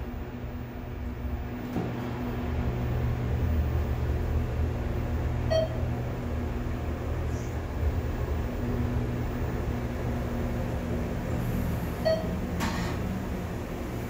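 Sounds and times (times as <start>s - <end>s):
elevator drive humming: 0.0s - 14.0s
short electronic beep: 5.5s - 5.8s.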